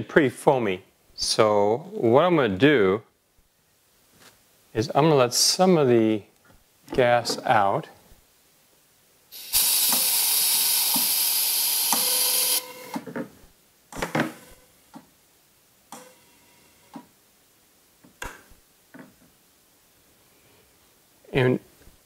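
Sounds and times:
pressurised gas hissing: 9.3s - 12.6s.

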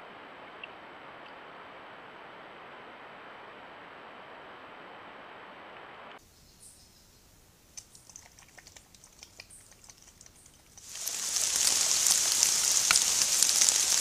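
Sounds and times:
steady outdoor hiss: 0.0s - 14.0s
faint clicks: 7.7s - 10.9s.

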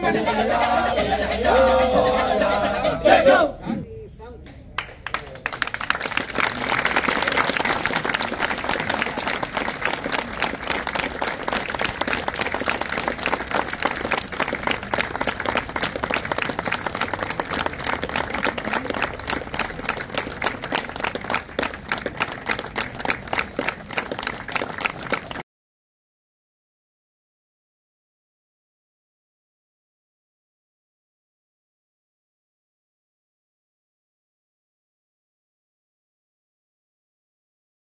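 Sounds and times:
audience applauding: 4.8s - 25.4s.

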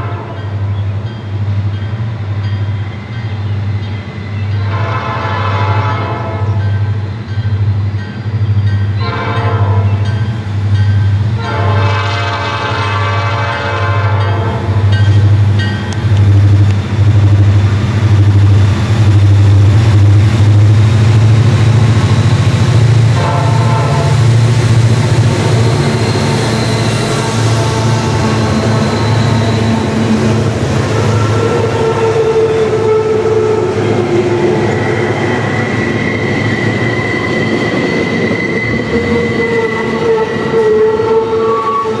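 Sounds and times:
train horn blasts: 0.0s - 0.6s, 4.6s - 6.8s, 9.0s - 10.1s, 11.4s - 15.0s, 23.1s - 24.4s, 25.3s - 34.6s, 38.9s - 42.0s
diesel locomotive engine rumble: 0.0s - 42.0s.

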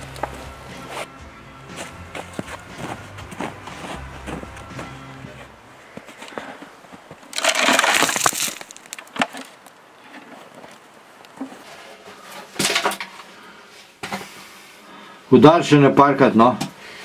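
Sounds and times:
rocks tipped onto snow: 6.0s - 9.8s.

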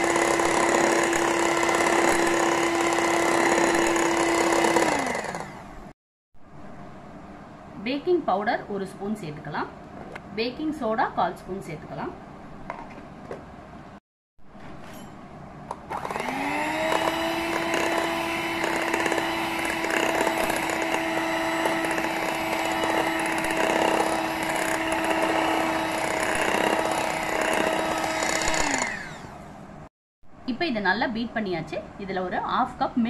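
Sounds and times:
electric hand mixer whining: 0.0s - 5.7s, 15.9s - 29.4s.

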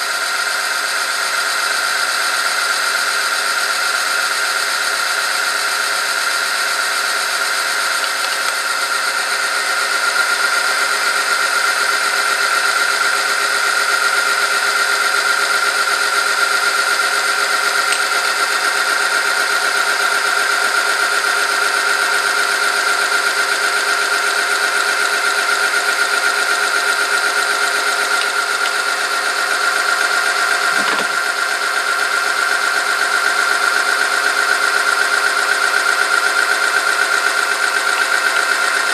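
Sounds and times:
machine high whine: 0.0s - 38.9s
rough mechanical running noise: 0.0s - 38.9s.

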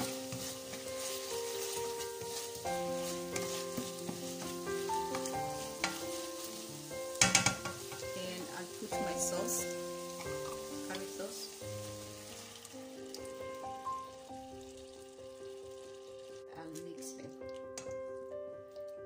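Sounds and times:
spatula clattering against pan: 0.0s - 6.3s, 7.1s - 8.2s
spatula scraping a pan: 0.0s - 13.4s
chicken sizzling in a pan: 0.0s - 18.4s
background music: 0.0s - 19.0s.

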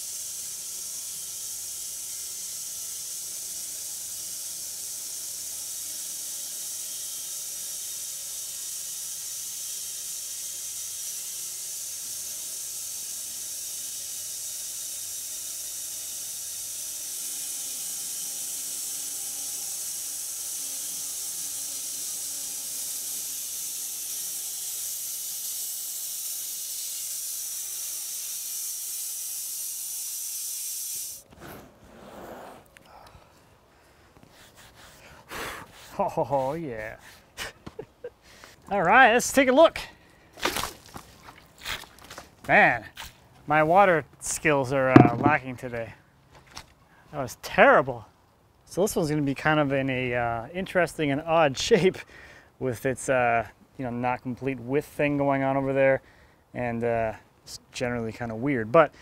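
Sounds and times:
bandsaw blade hissing through log: 0.0s - 32.6s, 34.3s - 36.3s.

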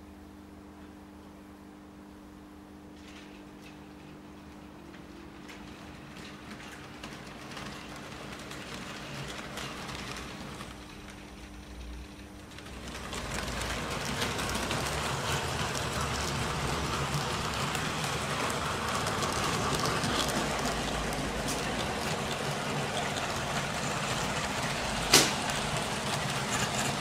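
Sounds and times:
model train wheels rattling on rails: 5.4s - 27.0s.

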